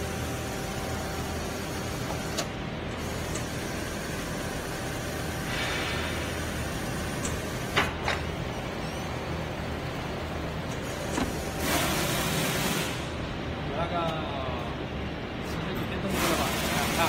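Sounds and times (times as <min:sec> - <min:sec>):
hot press humming: 0:00.0 - 0:13.2.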